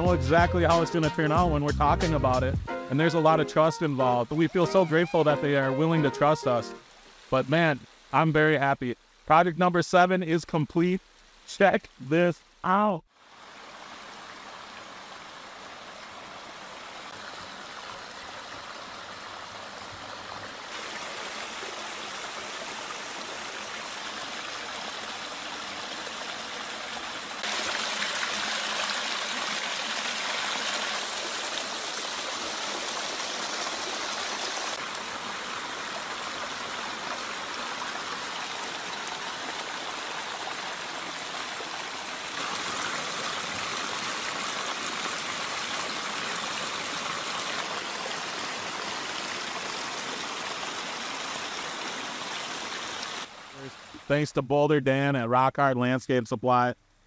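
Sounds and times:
waterfall splashing over boulders: 3.0 - 54.0.

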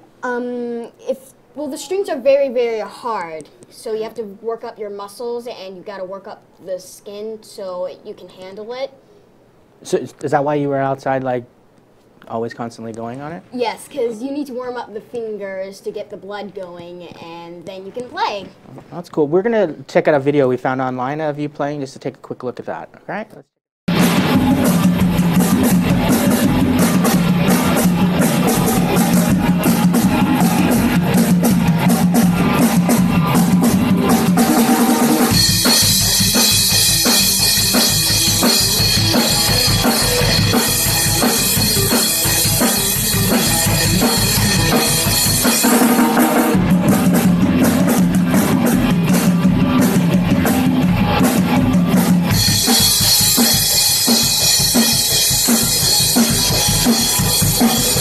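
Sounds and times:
drum kit: 23.9 - 58.0
electric guitar: 23.9 - 58.0.

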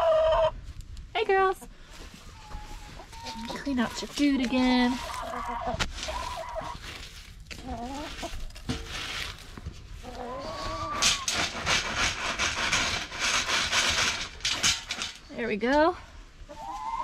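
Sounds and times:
hens clucking: 0.0 - 0.6, 1.6 - 15.1, 16.4 - 17.0
straw and pellets rattling in feeder: 10.6 - 15.4.

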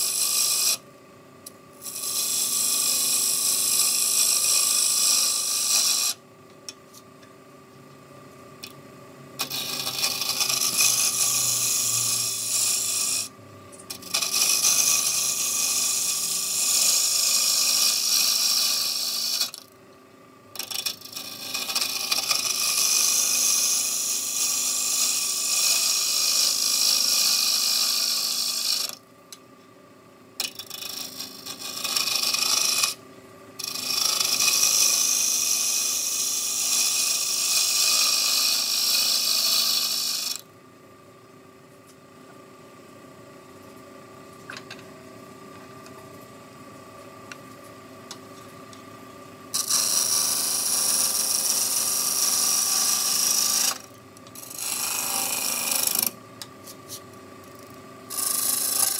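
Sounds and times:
turning tool scraping wood: 0.0 - 0.8, 1.8 - 6.2, 9.4 - 13.3, 13.9 - 19.6, 20.6 - 29.0, 30.4 - 33.0, 33.6 - 40.3, 49.6 - 53.8, 58.1 - 58.9
steady hum: 39.8 - 58.9.

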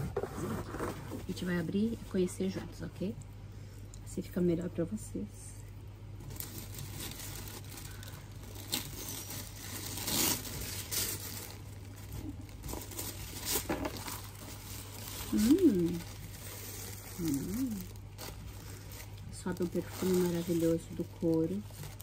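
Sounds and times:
tissue paper rustling: 6.2 - 22.0
person humming: 15.3 - 16.0, 17.2 - 17.9.

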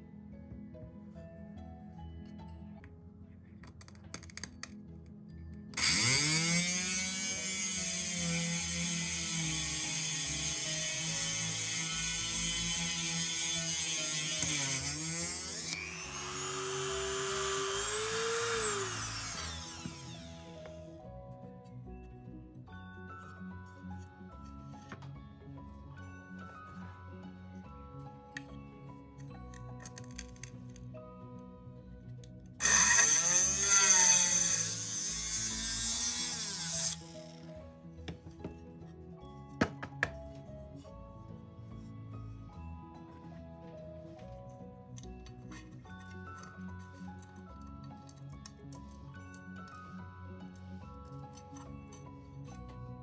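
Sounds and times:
rotary tool motor whine: 5.8 - 21.0, 32.6 - 37.5
bit grinding into glass: 32.6 - 37.2.

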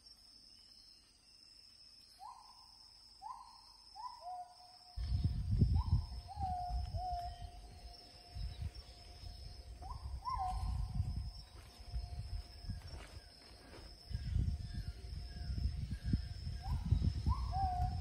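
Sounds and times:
high insect whine: 0.0 - 18.0
bird hooting: 5.8 - 8.4, 9.1 - 11.0, 16.4 - 18.0.

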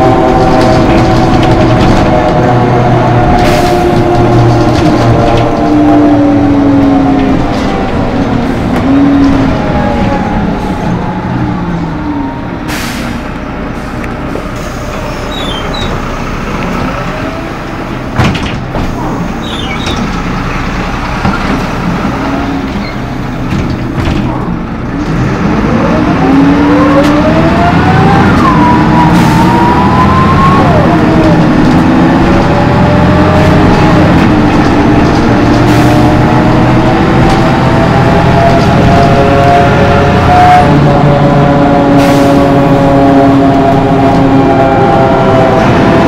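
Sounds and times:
bus engine: 0.0 - 46.0.

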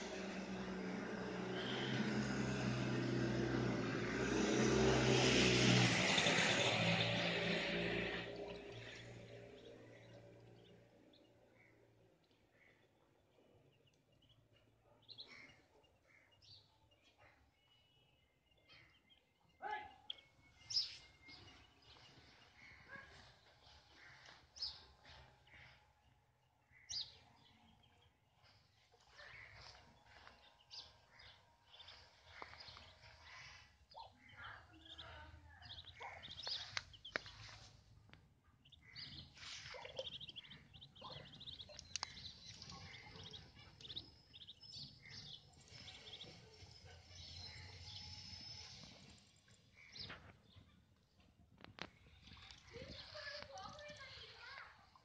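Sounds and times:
ducklings peeping: 5.8 - 13.2, 20.1 - 26.0, 26.8 - 51.1, 51.7 - 55.0.

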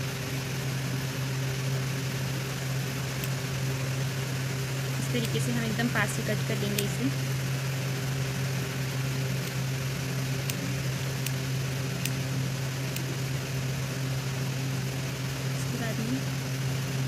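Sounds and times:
steady low hum: 0.0 - 17.0
scissors snipping thread: 5.0 - 7.1, 10.4 - 11.4, 12.0 - 12.2, 12.9 - 13.1.

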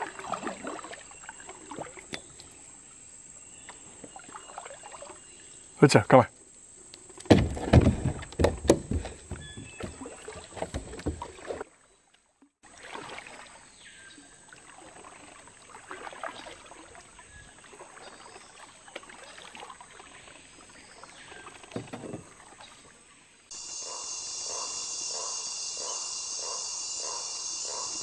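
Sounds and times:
paddle strokes splashing in water: 0.0 - 2.6, 3.6 - 5.5, 7.2 - 23.2
knocks on plastic kayak hull: 7.3 - 11.6.

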